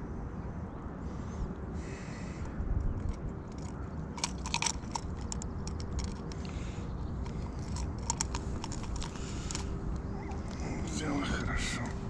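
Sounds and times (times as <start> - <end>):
hooks clicking and scraping: 2.8 - 12.0.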